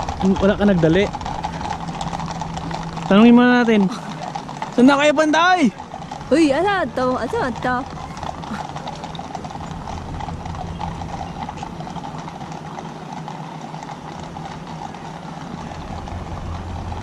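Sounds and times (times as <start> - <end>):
horses' hooves clip-clopping on road: 0.0 - 17.0
pickup truck driving past: 0.0 - 17.0
street traffic: 0.0 - 17.0.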